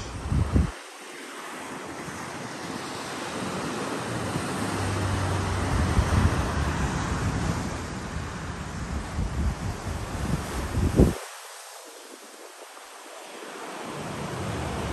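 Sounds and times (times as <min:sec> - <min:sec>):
wind buffeting microphone: 0:00.0 - 0:00.9, 0:01.6 - 0:11.4
waves washing onto beach: 0:00.0 - 0:14.9.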